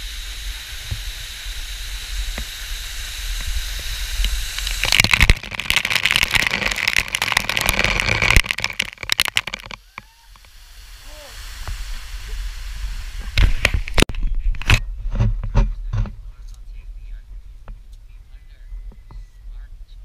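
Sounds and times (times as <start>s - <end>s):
water spattering on camera: 2.2s - 14.1s.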